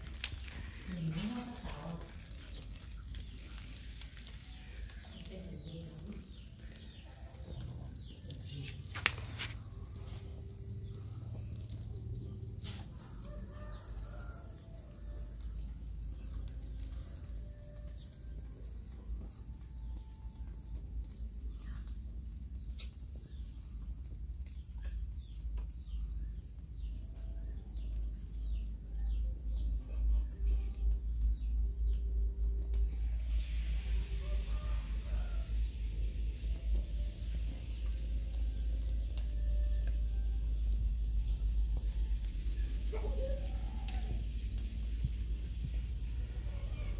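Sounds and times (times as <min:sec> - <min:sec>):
burning matchsticks crackling: 0:00.0 - 0:19.7, 0:32.6 - 0:46.9
steady high hiss: 0:00.0 - 0:46.9.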